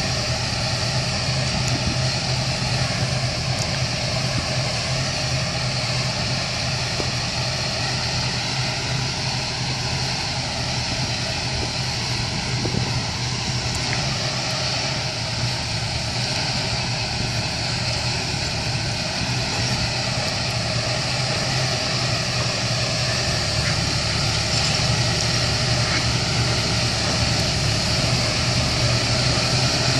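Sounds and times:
sprayer fan rushing air: 0:00.0 - 0:29.9
tractor engine hum: 0:00.0 - 0:29.9.

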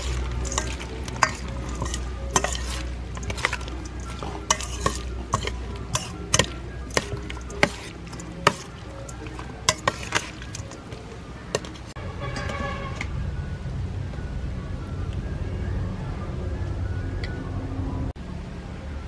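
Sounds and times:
metal spoon clinking on steel bowl: 0:00.0 - 0:12.5
background music: 0:00.0 - 0:18.2.

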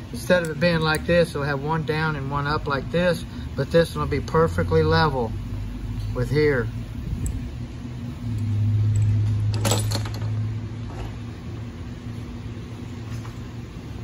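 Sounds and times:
steady low hum: 0:00.0 - 0:14.0
metal parts clattering on workbench: 0:09.0 - 0:11.1.

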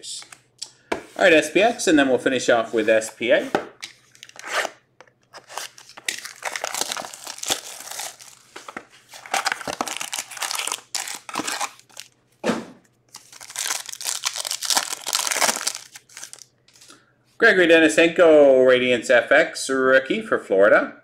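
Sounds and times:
plastic wrapping crinkling and tearing: 0:05.4 - 0:12.2, 0:13.1 - 0:16.5.

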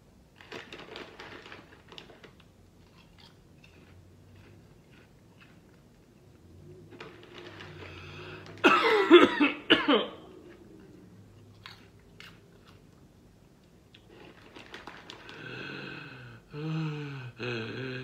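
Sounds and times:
crunching and chewing popcorn: 0:00.3 - 0:08.6, 0:10.4 - 0:16.5
person coughing harshly: 0:08.6 - 0:10.3.

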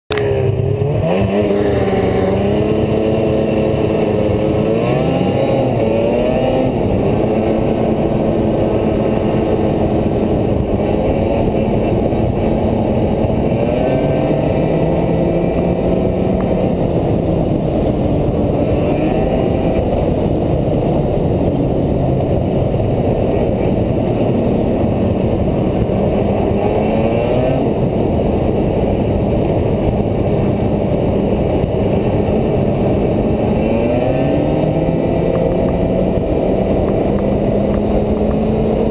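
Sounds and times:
snowmobile engine revving: 0:00.1 - 0:38.9.

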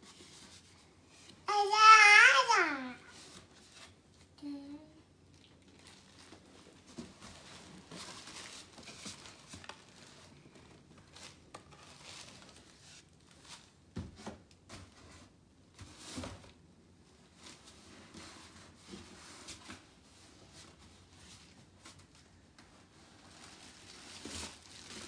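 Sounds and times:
cardboard boxes rustling: 0:06.2 - 0:10.4.

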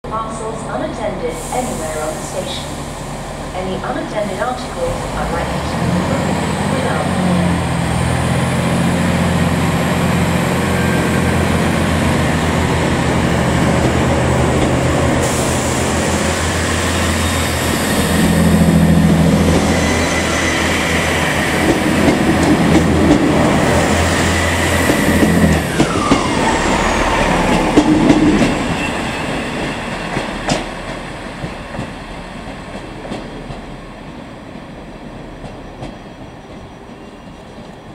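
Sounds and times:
diesel train engines running: 0:00.0 - 0:37.9.

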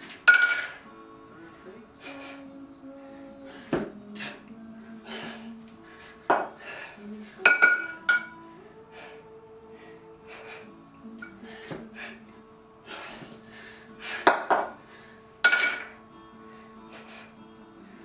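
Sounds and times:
kettlebells swinging: 0:00.0 - 0:00.8, 0:03.5 - 0:08.4, 0:10.2 - 0:12.2, 0:12.9 - 0:14.8, 0:15.4 - 0:16.0
background music: 0:00.0 - 0:18.0
sharp breaths: 0:02.0 - 0:02.5, 0:05.0 - 0:07.0, 0:08.9 - 0:12.2, 0:12.8 - 0:15.3, 0:16.4 - 0:17.4
metal clinks: 0:07.5 - 0:08.4.

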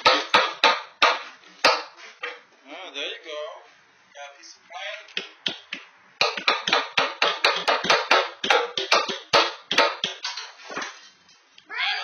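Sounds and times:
hammer striking wooden board: 0:00.0 - 0:02.0, 0:05.2 - 0:10.3.

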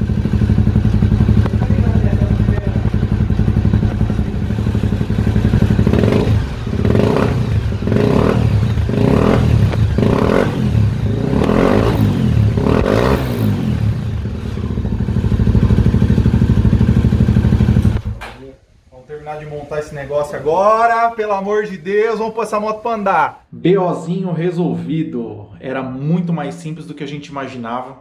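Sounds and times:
motorcycle engine idling and revving: 0:00.0 - 0:18.3.

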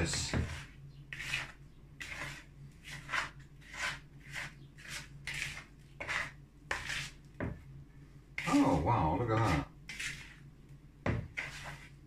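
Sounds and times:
plastic card scraping bowl: 0:09.3 - 0:10.5.

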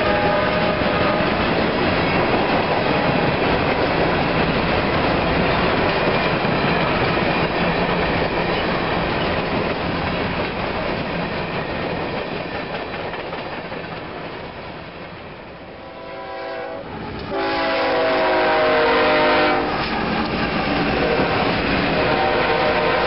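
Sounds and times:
freight train wheels clattering: 0:00.0 - 0:15.2, 0:17.0 - 0:23.0
diesel locomotive engines: 0:00.0 - 0:23.0.

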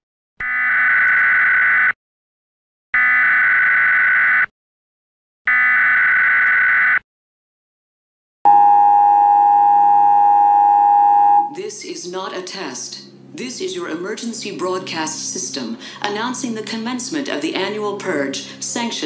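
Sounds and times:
two-tone attention signal: 0:08.5 - 0:11.6.

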